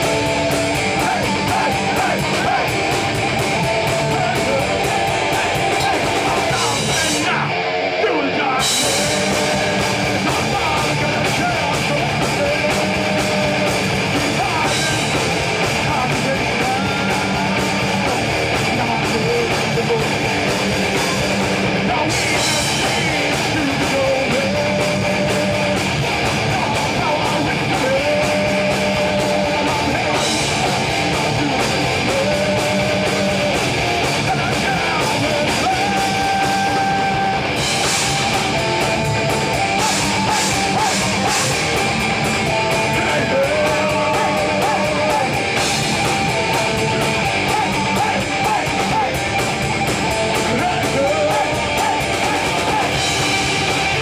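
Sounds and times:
bass guitar: 0:00.0 - 0:54.0
drum kit: 0:00.0 - 0:54.0
electric guitars: 0:00.0 - 0:54.0.

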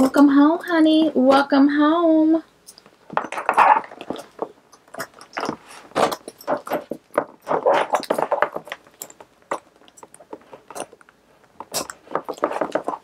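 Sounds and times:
small clicks and clinks: 0:02.6 - 0:13.0.

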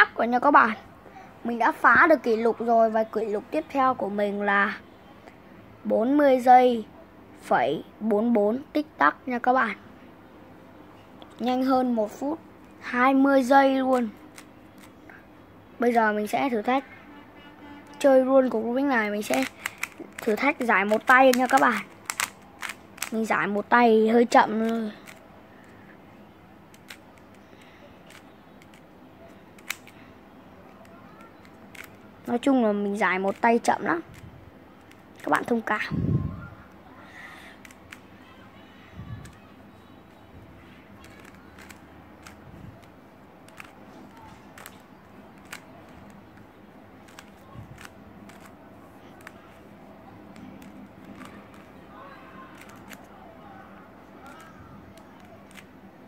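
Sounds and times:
faint background hum: 0:00.0 - 0:56.0
puzzle cube plastic clicks: 0:13.8 - 0:15.1, 0:19.2 - 0:23.6, 0:24.4 - 0:25.8, 0:26.7 - 0:30.0, 0:30.7 - 0:32.5, 0:33.2 - 0:35.6, 0:37.6 - 0:38.1, 0:39.2 - 0:39.5, 0:41.0 - 0:49.7, 0:50.3 - 0:51.8, 0:52.5 - 0:53.1, 0:54.2 - 0:55.7.

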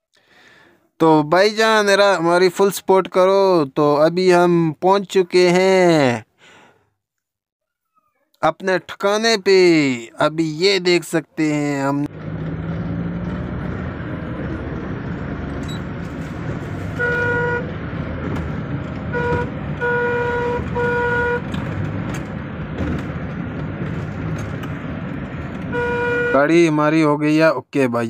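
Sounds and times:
car engine droning: 0:12.0 - 0:26.6
car horn toots: 0:16.8 - 0:17.8, 0:19.0 - 0:21.9, 0:25.6 - 0:26.6.

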